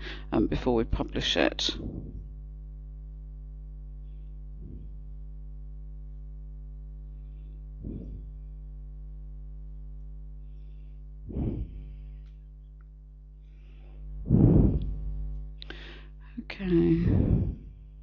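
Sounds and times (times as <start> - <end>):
low electrical hum: 0.0 - 18.0
breathy noises close to microphone: 1.7 - 2.4, 4.0 - 5.1, 7.0 - 8.8, 10.3 - 18.0.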